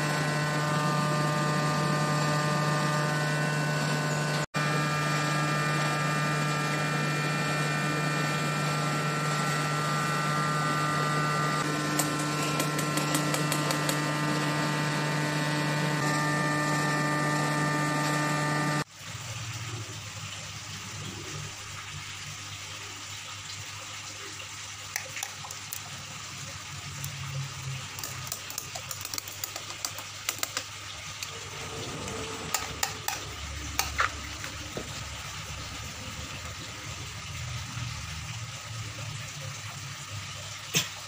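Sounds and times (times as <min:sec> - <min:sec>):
water rushing: 0:29.3 - 0:39.4
low hum: 0:31.1 - 0:39.0.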